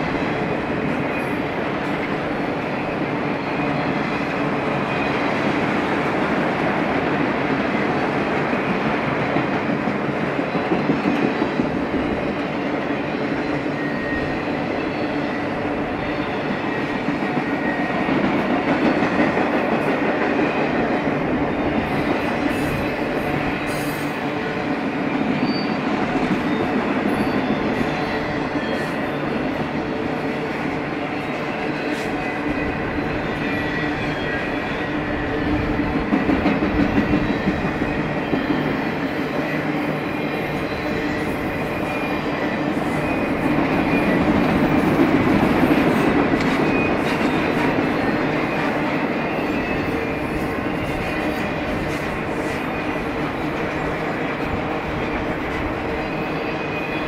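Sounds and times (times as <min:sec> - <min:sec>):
freight train wheels rumbling on rail: 0:00.0 - 0:57.0
faint high wheel squeal: 0:13.4 - 0:18.0, 0:25.4 - 0:29.5, 0:31.1 - 0:36.0, 0:37.0 - 0:44.8, 0:46.4 - 0:53.7, 0:55.5 - 0:57.0.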